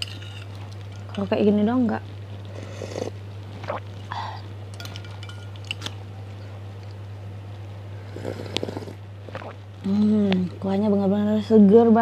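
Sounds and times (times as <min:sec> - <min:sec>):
steady low hum: 0:00.0 - 0:12.0
cutlery clinking against glass bowl: 0:04.8 - 0:05.9.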